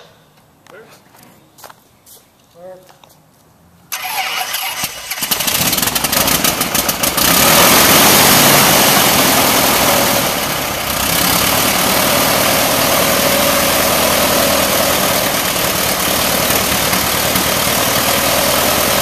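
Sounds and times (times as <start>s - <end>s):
starter cranking aircraft engine: 3.9s - 7.2s.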